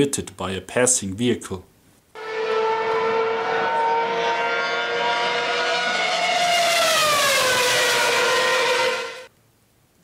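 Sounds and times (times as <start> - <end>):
race car engine passing at speed: 2.2 - 9.3.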